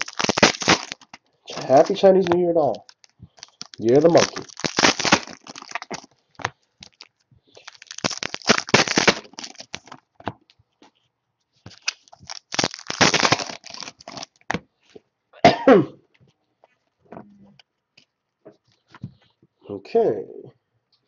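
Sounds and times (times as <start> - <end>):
foil wrappers tearing and crinkling: 0.0 - 10.1, 11.7 - 14.5
cards snapping: 7.6 - 10.0, 11.7 - 14.6
person coughing: 15.4 - 16.0.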